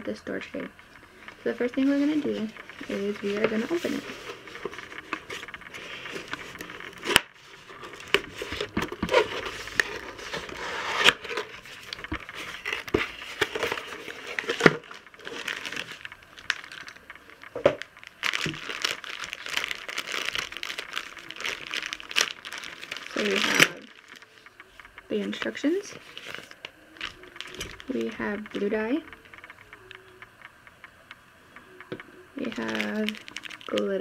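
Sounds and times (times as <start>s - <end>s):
plastic bag crinkling: 1.0s - 29.7s, 32.4s - 34.0s.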